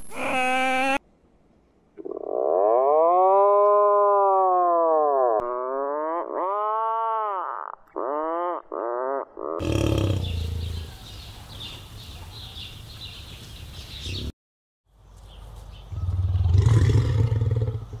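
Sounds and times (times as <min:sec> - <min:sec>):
small birds chirping: 0:09.6 - 0:14.3.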